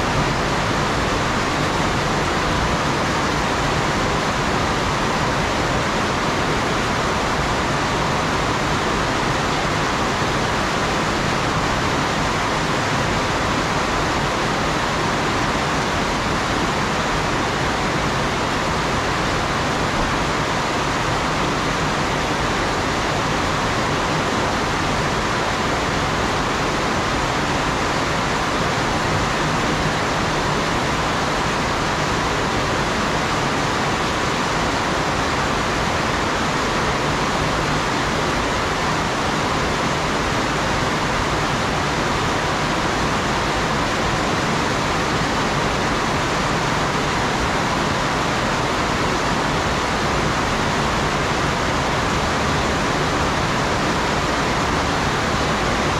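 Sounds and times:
heavy rain pouring: 0:00.0 - 0:55.9.

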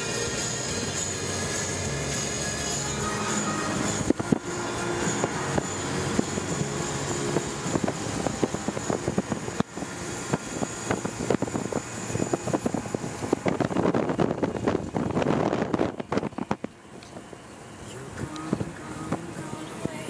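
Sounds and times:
car engine and road noise: 0:00.0 - 0:20.0.

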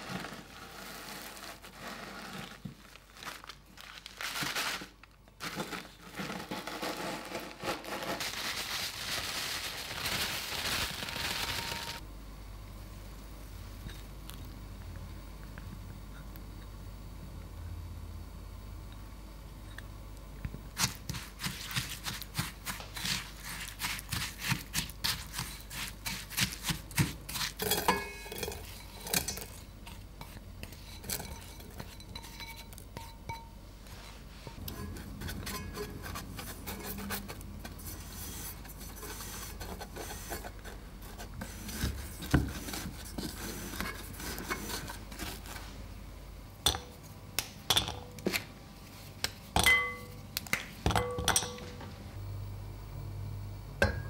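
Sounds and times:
spatula scraping ceramic bowl: 0:21.1 - 0:45.6.

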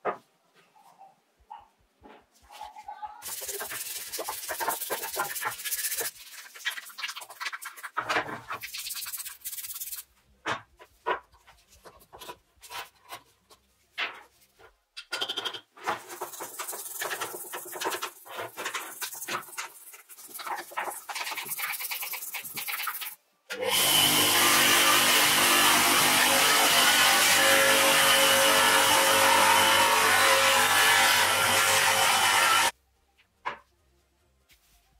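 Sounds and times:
brush scrubbing plastic: 0:03.2 - 0:10.2, 0:15.8 - 0:23.2.

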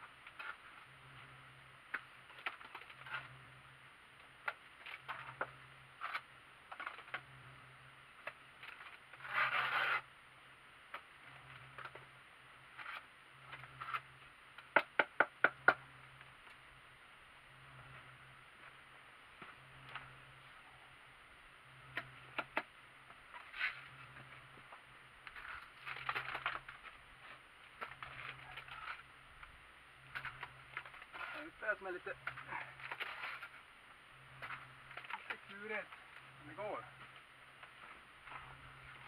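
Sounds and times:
trowel scraping mortar: 0:08.7 - 0:10.1.

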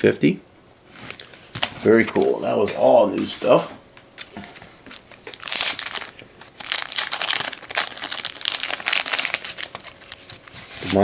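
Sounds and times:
cards and packaging rustling: 0:04.2 - 0:11.0.

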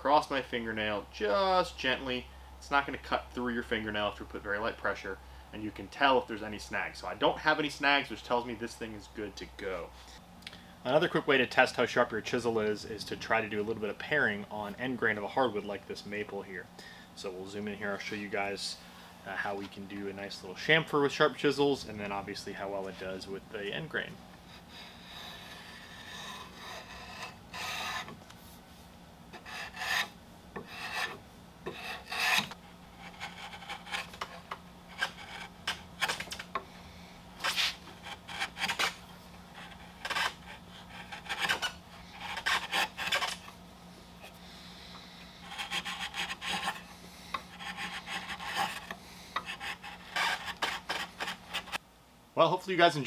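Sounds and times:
chisel scraping wood: 0:24.5 - 0:28.2, 0:29.3 - 0:36.6, 0:37.4 - 0:43.5, 0:45.4 - 0:51.8.

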